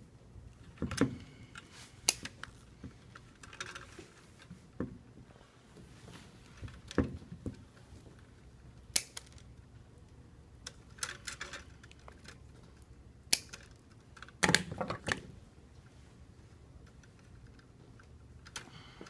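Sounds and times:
wire stripper clicks and snips: 8.9s - 9.3s, 13.3s - 13.6s.

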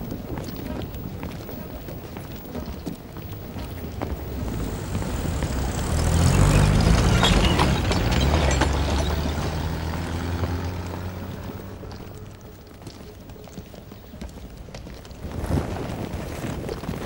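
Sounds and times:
light rattling: 0.0s - 15.1s
vehicle engine passing by: 3.3s - 13.0s.

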